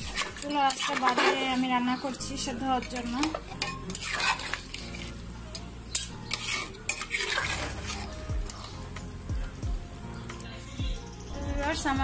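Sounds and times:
spoon scraping steel pot: 0:00.0 - 0:08.9.

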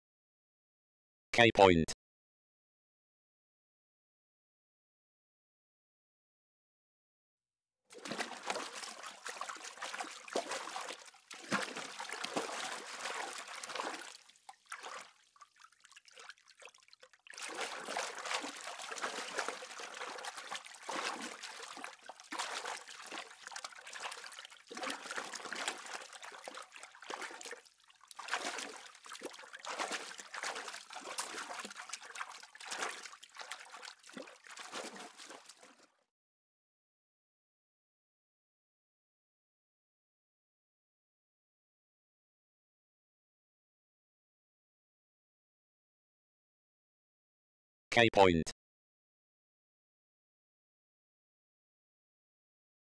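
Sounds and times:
water trickling and splashing: 0:07.9 - 0:35.9.

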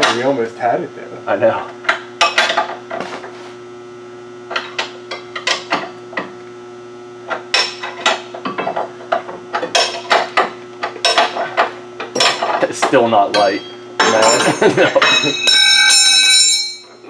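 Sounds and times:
electrical hum from lights: 0:00.0 - 0:17.0
metal clanks and taps from tools: 0:07.3 - 0:16.1.

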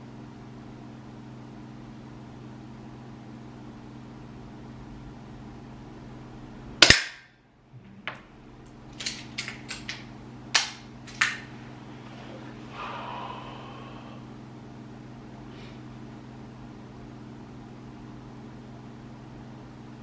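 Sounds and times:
air pistol shot: 0:06.8 - 0:07.3
pistol clicking as cocked: 0:09.0 - 0:10.0.

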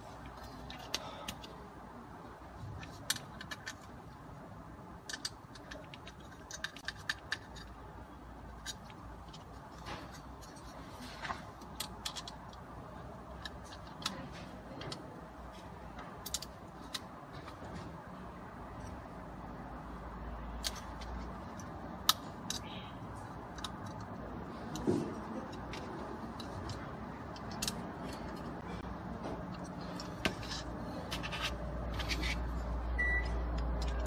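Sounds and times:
faint steady background noise: 0:00.0 - 0:34.0
small parts clicking and tapping: 0:00.2 - 0:01.6, 0:02.6 - 0:04.2, 0:04.9 - 0:17.6, 0:20.6 - 0:28.8.

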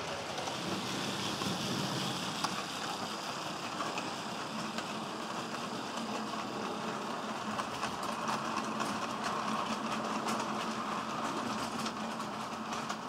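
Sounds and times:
model train hum: 0:00.0 - 0:13.0
wheels clicking over rails: 0:00.0 - 0:13.0.

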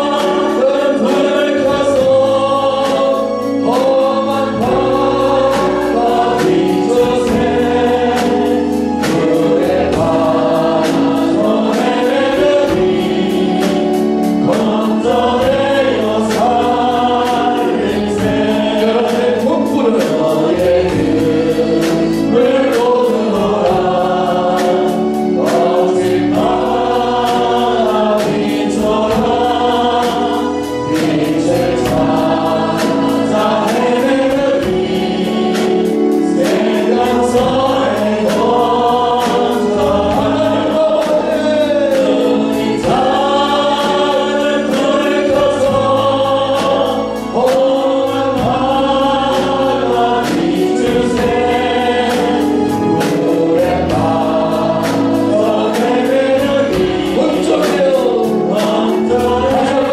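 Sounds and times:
band playing a steady beat: 0:00.0 - 0:59.9
many voices singing along: 0:00.0 - 0:59.9
man singing into a microphone: 0:55.5 - 0:59.9.

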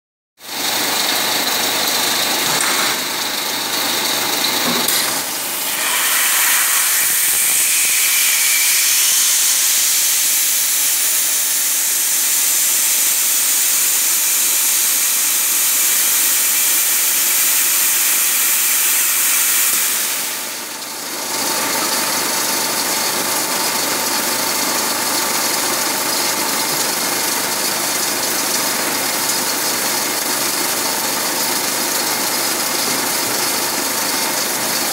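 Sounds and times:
loud hiss: 0:05.0 - 0:14.2, 0:15.2 - 0:20.8.

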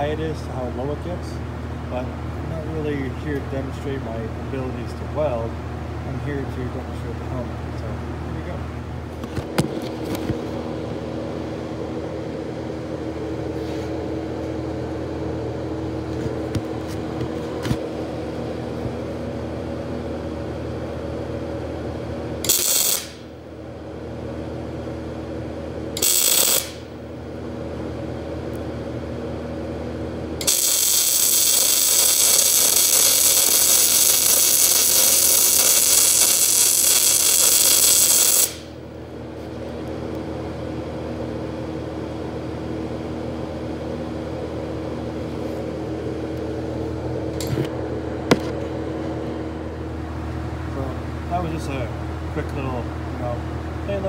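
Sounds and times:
welding machine hum: 0:13.0 - 0:40.8
welding arc hissing: 0:22.4 - 0:23.3, 0:26.0 - 0:26.9, 0:30.4 - 0:38.8.

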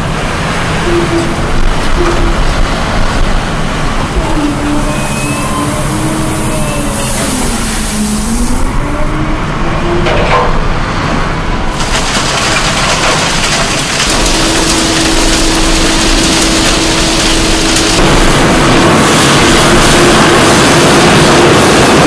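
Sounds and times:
steady hum: 0:00.0 - 0:09.8
conveyors and motors running: 0:00.0 - 0:22.0
diesel loader engine working: 0:00.0 - 0:22.0.

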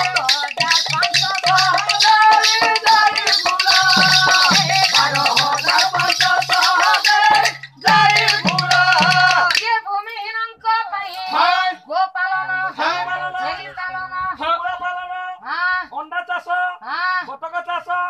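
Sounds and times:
low drum-like beat: 0:00.0 - 0:09.5
shaker-like percussion rattling: 0:00.0 - 0:10.2.

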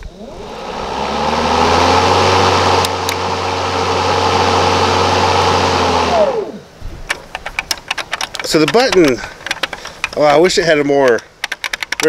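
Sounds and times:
lawn mower motor running: 0:00.0 - 0:10.6
light clicks: 0:07.1 - 0:12.0.

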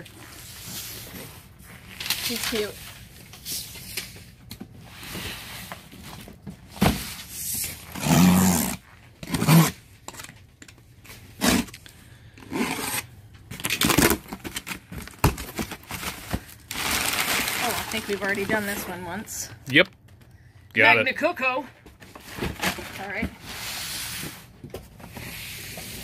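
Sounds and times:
box cutter slicing tape: 0:07.8 - 0:09.8, 0:11.4 - 0:11.8, 0:12.4 - 0:13.0.

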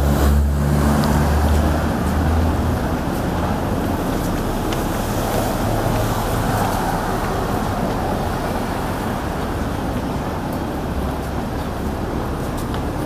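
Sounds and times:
city traffic passing: 0:00.0 - 0:13.0.

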